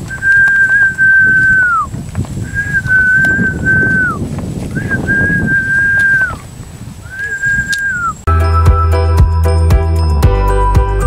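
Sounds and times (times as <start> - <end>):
footsteps on a path: 0.0 - 8.2
long whistled note: 0.1 - 1.9, 2.5 - 4.2, 4.8 - 6.4, 7.0 - 9.2.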